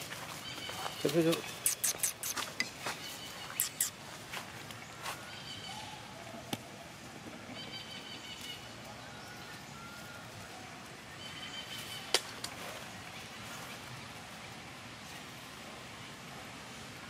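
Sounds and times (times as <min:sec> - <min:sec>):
outdoor background hiss: 0:00.0 - 0:17.0
short high calls: 0:00.5 - 0:04.0.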